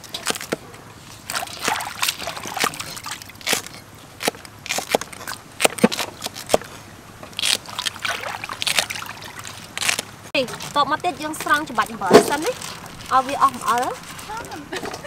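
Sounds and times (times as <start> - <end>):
water sloshing in a steel bowl: 0.0 - 3.9, 7.7 - 9.8.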